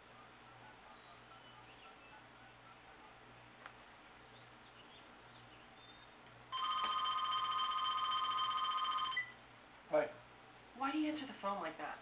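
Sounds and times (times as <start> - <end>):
telephone ringing: 6.5 - 9.4.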